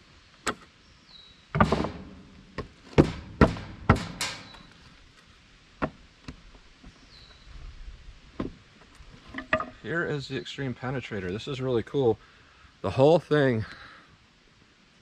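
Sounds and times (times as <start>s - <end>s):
wooden boards cracking and knocking: 1.6s - 4.9s.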